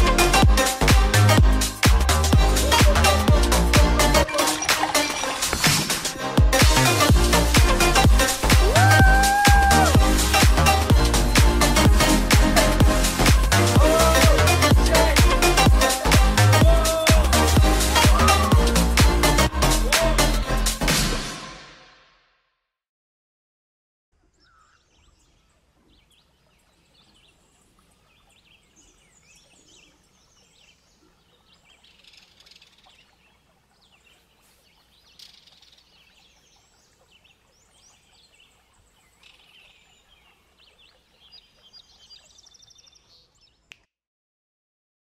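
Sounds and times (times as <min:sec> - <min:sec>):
small birds chirping: 0:24.2 - 0:43.9.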